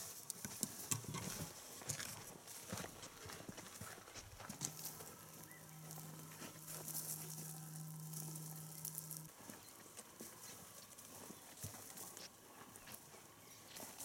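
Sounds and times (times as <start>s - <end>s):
crunching through dry bush: 0.0s - 14.0s
footsteps on dry ground: 0.0s - 14.0s
steady low hum: 2.4s - 14.0s.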